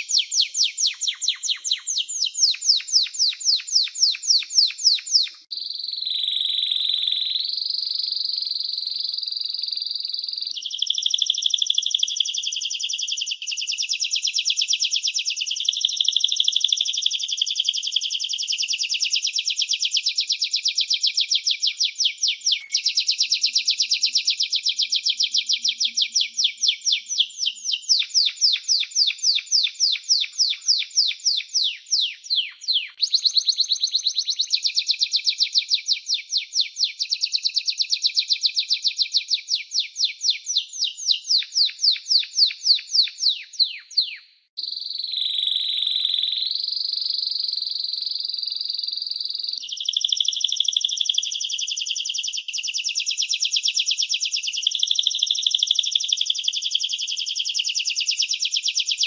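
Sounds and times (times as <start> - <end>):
canary singing trills: 0.0 - 59.0.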